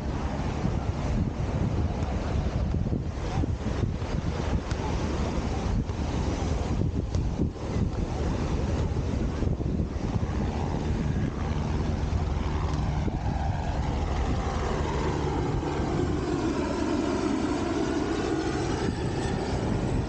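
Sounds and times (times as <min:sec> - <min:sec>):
helicopter flying past: 0:00.0 - 0:20.0
wind: 0:00.0 - 0:20.0.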